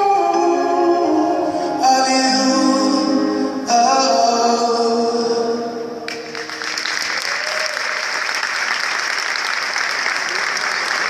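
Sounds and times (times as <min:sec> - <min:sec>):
audience applause: 0:06.3 - 0:11.0.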